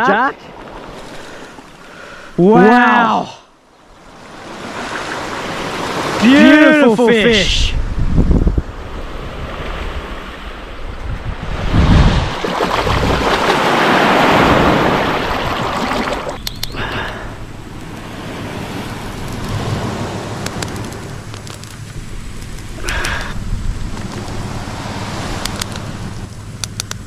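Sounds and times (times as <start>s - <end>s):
small waves washing on shore: 0.4s - 3.0s, 3.7s - 8.0s, 8.6s - 26.6s
wind buffeting microphone: 7.3s - 26.4s
water splashing by hand: 11.9s - 18.0s.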